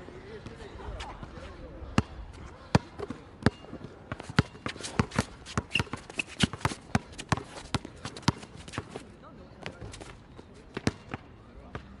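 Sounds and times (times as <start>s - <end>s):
basketball bouncing on court: 2.7s - 8.9s, 10.7s - 12.0s
sneaker squeaks: 4.2s - 9.0s.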